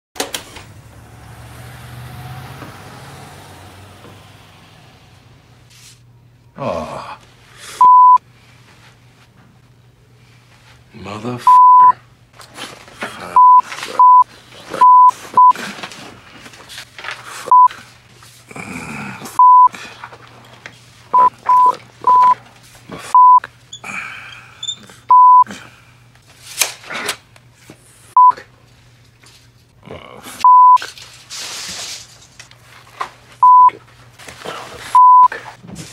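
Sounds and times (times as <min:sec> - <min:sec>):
censor beeps: 0:07.8 - 0:08.2, 0:11.5 - 0:11.9, 0:13.4 - 0:14.2, 0:14.8 - 0:15.5, 0:19.4 - 0:19.7, 0:21.2 - 0:22.4, 0:23.2 - 0:23.4, 0:25.1 - 0:25.5, 0:30.4 - 0:30.8, 0:33.4 - 0:33.7, 0:35.0 - 0:35.3.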